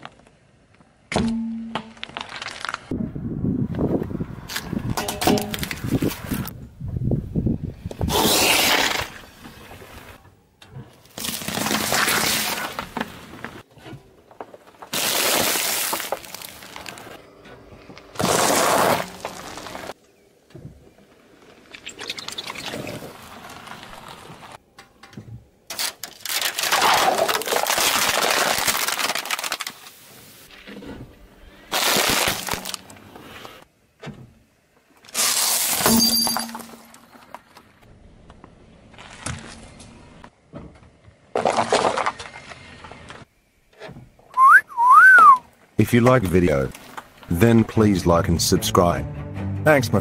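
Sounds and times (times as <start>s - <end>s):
tyre crushing objects: 11.0s - 17.2s, 18.1s - 20.0s, 25.7s - 29.7s, 31.7s - 32.9s.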